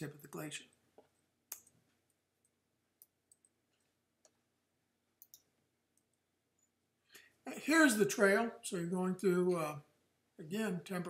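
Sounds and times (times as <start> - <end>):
computer mouse clicking: 5.2 - 6.1.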